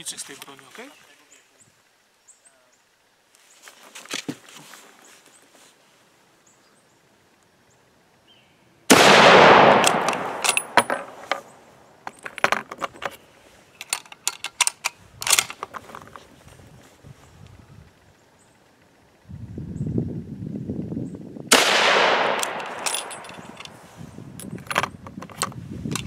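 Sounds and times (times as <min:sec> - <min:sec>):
rifle shot: 0:08.9 - 0:11.2, 0:21.5 - 0:23.5
rifle bolt clicking and clacking: 0:09.4 - 0:11.5, 0:13.8 - 0:16.2, 0:21.9 - 0:23.8, 0:24.4 - 0:26.0.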